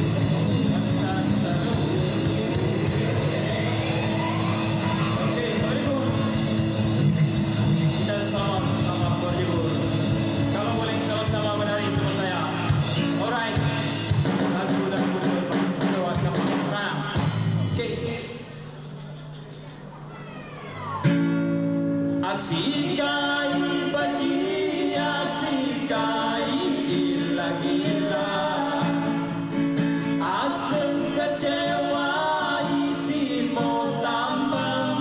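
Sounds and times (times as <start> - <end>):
live band music: 0.0 - 17.9
man singing: 0.0 - 18.6, 22.2 - 29.4, 30.0 - 35.0
electric guitar: 0.0 - 35.0.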